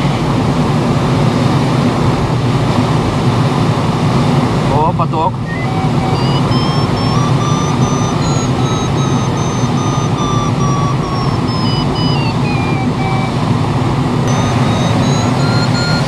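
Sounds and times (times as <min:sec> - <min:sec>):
wind noise in cockpit: 0:00.0 - 0:16.0
variometer electronic tone: 0:05.4 - 0:16.0.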